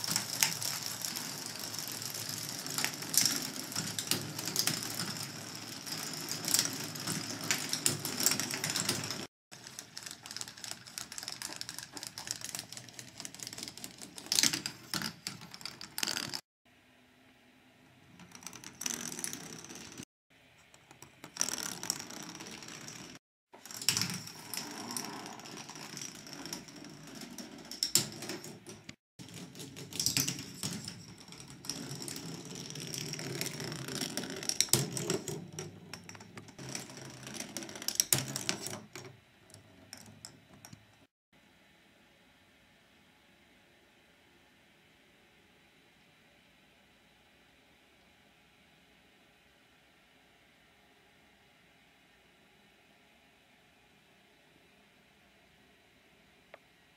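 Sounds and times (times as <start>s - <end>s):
plastic balls clicking and rattling: 0.0s - 16.4s, 18.2s - 20.0s, 20.9s - 41.1s.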